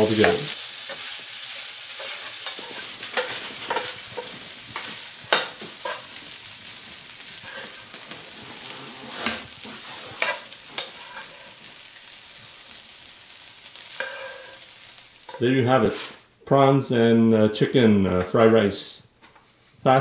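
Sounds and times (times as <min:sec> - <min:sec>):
rice sizzling in frying pan: 0:00.0 - 0:16.1
spatula scraping and tapping pan: 0:00.2 - 0:11.9, 0:13.7 - 0:15.4.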